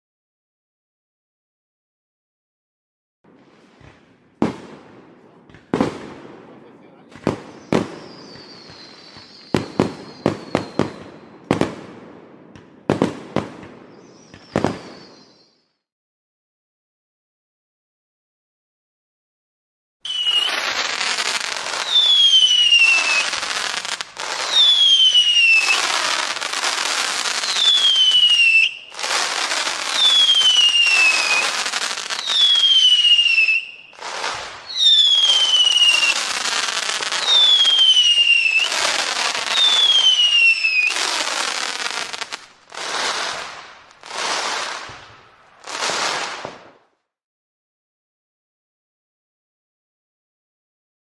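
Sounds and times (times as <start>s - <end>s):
firework crackling: 3.3s - 15.3s, 20.1s - 47.0s
firework whistles falling in pitch: 7.3s - 11.6s, 13.9s - 15.8s, 20.0s - 46.7s.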